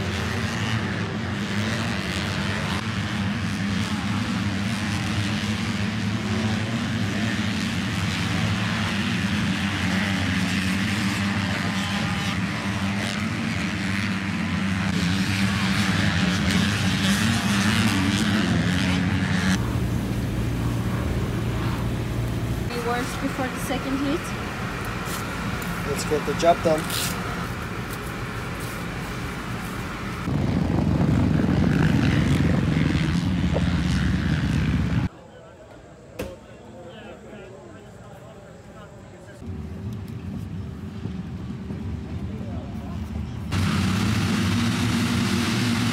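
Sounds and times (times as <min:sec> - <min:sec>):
motocross bike engines racing: 0:00.0 - 0:35.1, 0:37.0 - 0:45.9.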